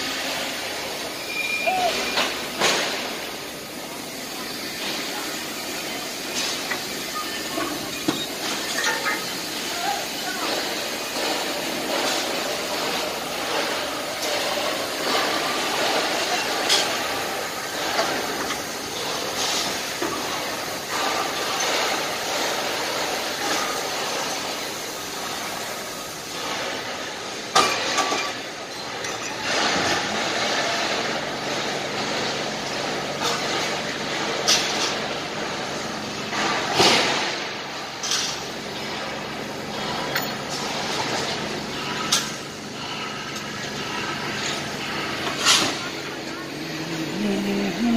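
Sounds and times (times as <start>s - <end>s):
crane trolley motor rumble: 37.6s - 47.9s.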